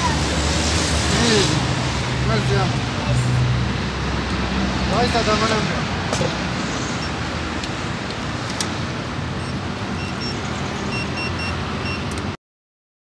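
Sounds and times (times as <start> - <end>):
street traffic: 0.0 - 12.4
payment terminal beeps: 7.0 - 7.3, 9.4 - 12.2.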